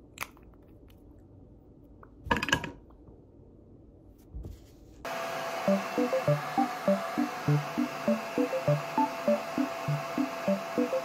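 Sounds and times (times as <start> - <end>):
hair dryer blowing: 5.1 - 11.0.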